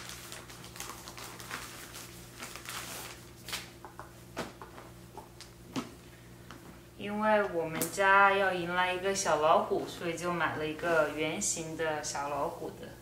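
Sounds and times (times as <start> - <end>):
plastic packaging crinkling: 0.0 - 3.8
faint steady hum: 0.0 - 13.0.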